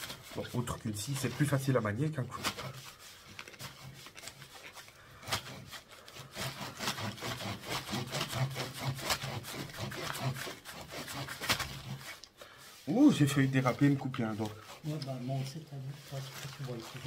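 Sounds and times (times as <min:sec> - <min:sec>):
hand saw rasping through coir: 0:00.0 - 0:15.0.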